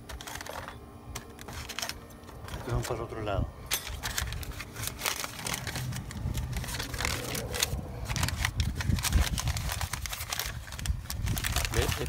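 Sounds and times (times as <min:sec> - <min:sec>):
low rumble: 0:03.4 - 0:11.6
hands handling brake parts: 0:03.7 - 0:08.6.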